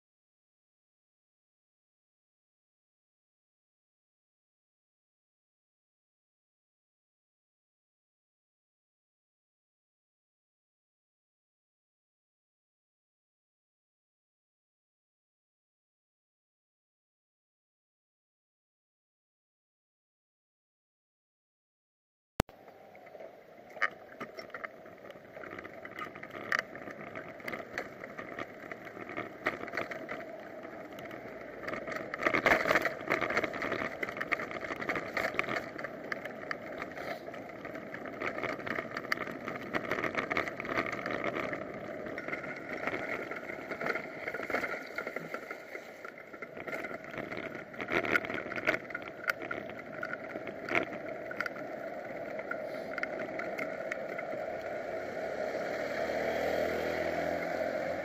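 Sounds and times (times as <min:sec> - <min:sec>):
rushing wind and road noise: 0:23.7 - 0:58.0.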